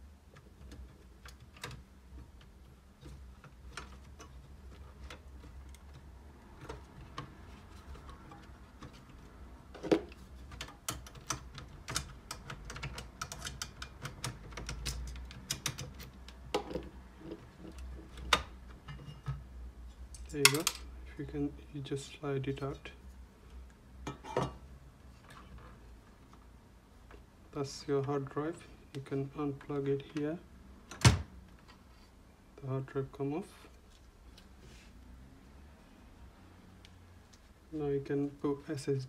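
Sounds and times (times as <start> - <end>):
clicks and taps on metal: 10.0 - 16.9.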